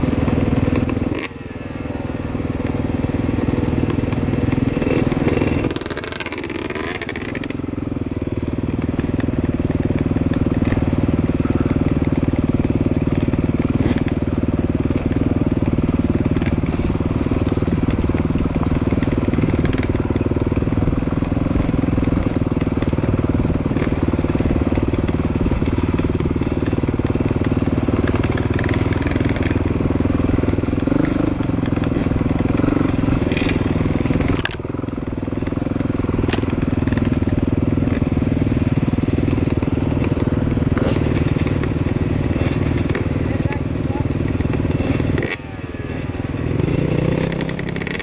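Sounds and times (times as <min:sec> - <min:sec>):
dirt bike engine: 0:00.0 - 0:48.0.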